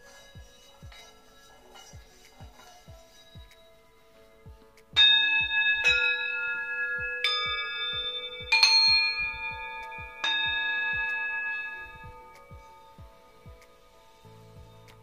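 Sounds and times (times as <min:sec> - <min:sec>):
singing bowls ringing tones: 0:00.0 - 0:04.4, 0:05.0 - 0:15.0
singing bowls struck with mallet: 0:05.0 - 0:15.0.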